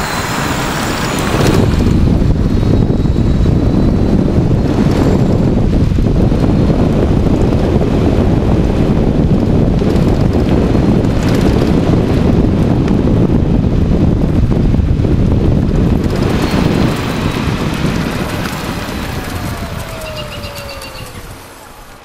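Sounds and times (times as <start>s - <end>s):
low rumble of tyre on road: 0.0s - 22.0s
wind buffeting microphone: 0.0s - 22.0s.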